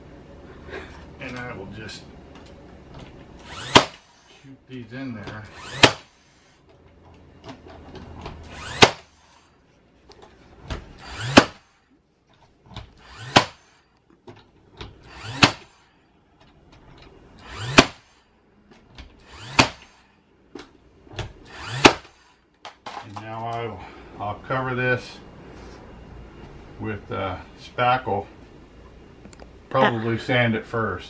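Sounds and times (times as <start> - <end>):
nail gun motor whine: 3.0 - 4.4, 5.3 - 6.6, 7.4 - 9.5, 10.6 - 11.8, 12.7 - 14.0, 14.8 - 15.9, 17.0 - 20.2, 21.1 - 22.4
nail gun firing crack: 3.4 - 4.2, 5.5 - 6.2, 8.4 - 9.2, 11.0 - 11.7, 12.9 - 13.8, 15.0 - 15.8, 17.4 - 18.2, 19.2 - 20.0, 21.2 - 23.0.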